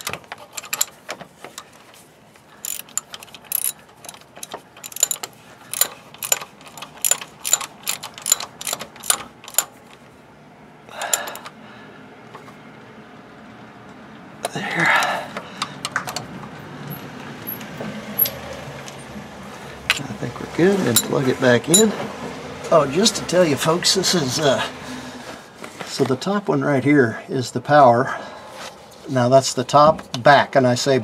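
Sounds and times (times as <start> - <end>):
socket ratchet clicking: 0.0 - 1.0, 2.6 - 9.7, 11.0 - 11.5
scraping clatters: 0.0 - 10.0.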